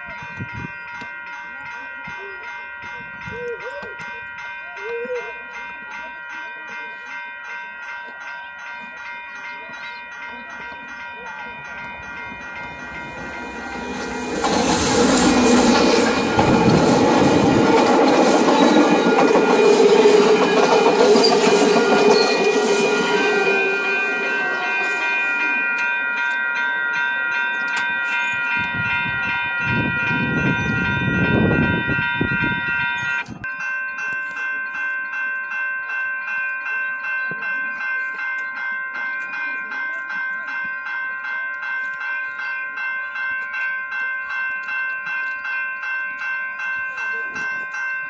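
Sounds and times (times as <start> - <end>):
level-crossing bell ringing: 0.0 - 48.0
train rumbling past: 11.2 - 26.1.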